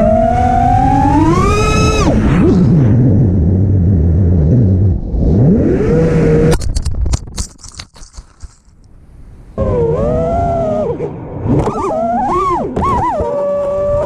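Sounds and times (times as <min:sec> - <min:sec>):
drone motors whining: 0:00.0 - 0:04.4, 0:09.6 - 0:14.0.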